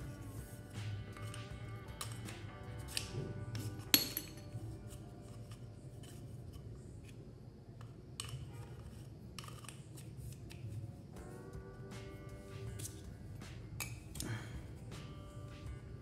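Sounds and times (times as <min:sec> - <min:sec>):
small metal parts clicking: 0:09.4 - 0:10.0.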